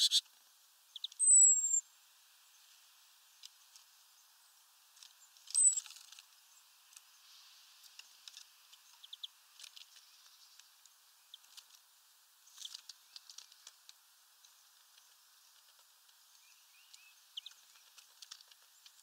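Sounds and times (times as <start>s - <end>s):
high bird chirp: 0.0s - 0.2s, 0.9s - 1.8s, 5.5s - 5.9s
beaks tapping on seeds: 5.0s - 7.1s, 7.8s - 11.8s, 12.5s - 19.0s.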